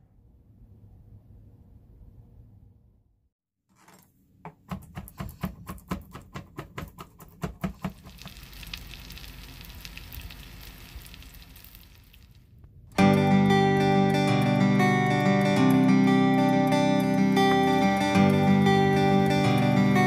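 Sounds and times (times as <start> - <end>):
chicken sizzling in oil: 7.9 - 12.4.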